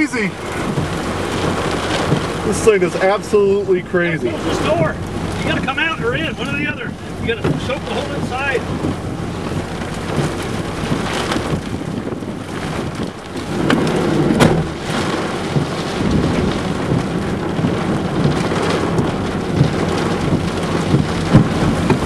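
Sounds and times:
heavy rain falling: 0:00.0 - 0:22.0
raindrops ticking on microphone: 0:00.0 - 0:22.0
wind: 0:00.0 - 0:22.0.

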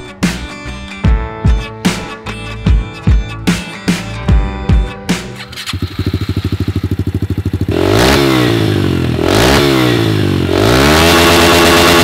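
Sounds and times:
motorcycle engine idling and revving: 0:02.7 - 0:12.0.

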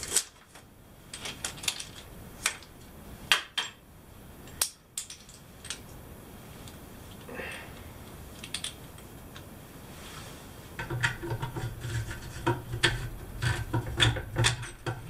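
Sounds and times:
shower hose fittings clinking: 0:12.2 - 0:15.0.

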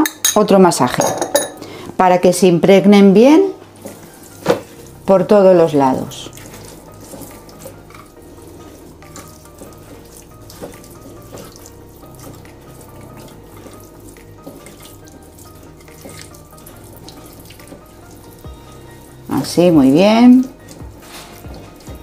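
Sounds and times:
soft background music: 0:00.0 - 0:22.0
hands squelching raw chicken: 0:06.2 - 0:18.4.

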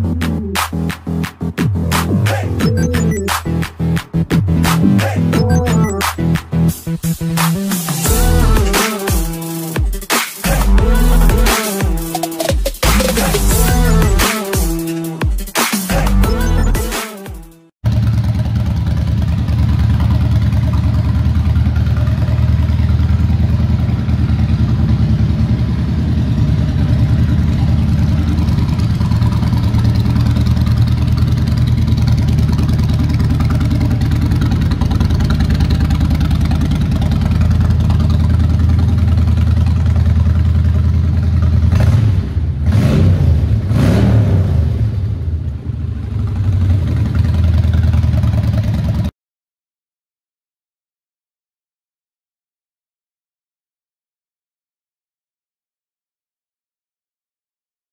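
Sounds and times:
motorcycle engine idling and revving: 0:03.4 - 0:15.4, 0:17.8 - 0:49.1.

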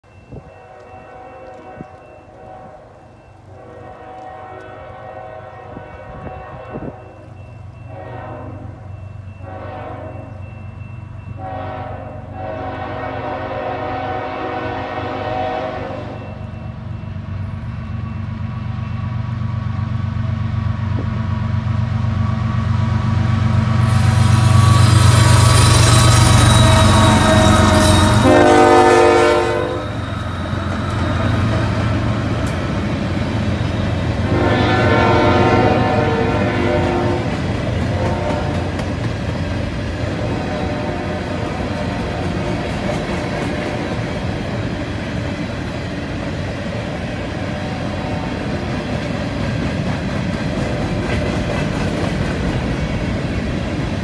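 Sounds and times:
diesel locomotive engine rumble: 0:00.0 - 0:54.0
train wheels on rails: 0:00.0 - 0:54.0
train air horn blasts: 0:00.3 - 0:07.2, 0:07.8 - 0:10.5, 0:11.4 - 0:16.4, 0:24.5 - 0:31.8, 0:34.2 - 0:38.9, 0:40.0 - 0:44.0.

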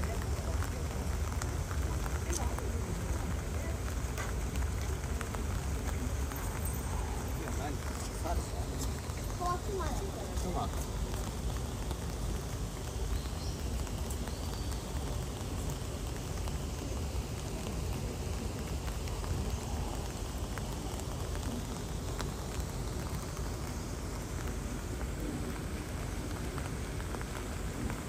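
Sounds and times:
raindrop ticks: 0:00.0 - 0:28.0
steady rain falling: 0:00.0 - 0:28.0.

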